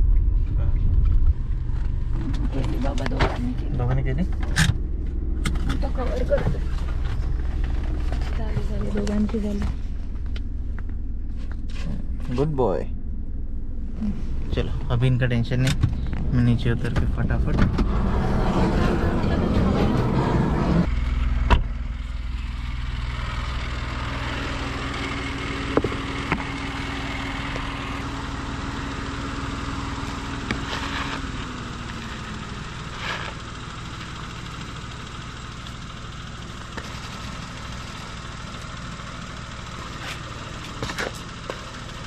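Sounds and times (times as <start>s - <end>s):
car engine idling: 0.0s - 42.0s
car door shutting: 15.6s - 18.3s.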